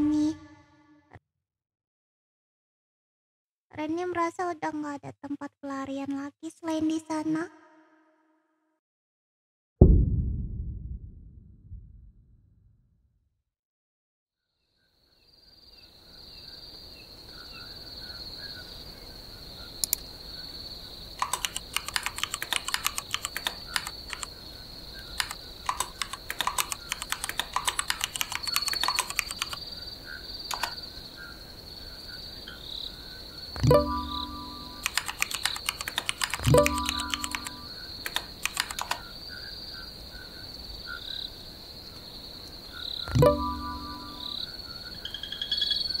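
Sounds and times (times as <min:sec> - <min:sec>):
crickets chirring: 0:15.0 - 0:46.0
keyboard typing: 0:21.2 - 0:24.4, 0:25.1 - 0:29.6, 0:30.5 - 0:30.8, 0:33.6 - 0:39.1
message notification tone: 0:33.6 - 0:34.9, 0:36.5 - 0:37.7, 0:43.1 - 0:44.4.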